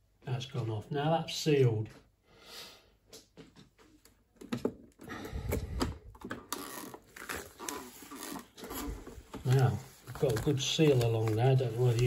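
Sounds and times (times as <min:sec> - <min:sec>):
plastic bag rustling: 0:06.5 - 0:12.0.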